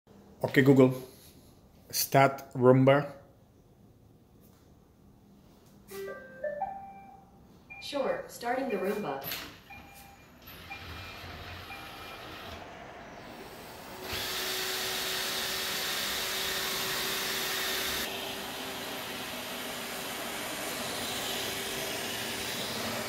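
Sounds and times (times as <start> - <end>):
robot vacuum motor and brushes: 10.5 - 23.0.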